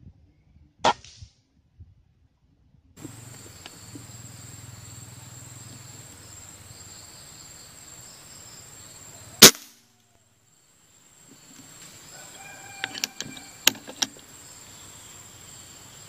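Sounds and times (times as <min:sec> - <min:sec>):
forest insects droning: 0:03.0 - 0:16.0
rifle shot: 0:09.4 - 0:09.8.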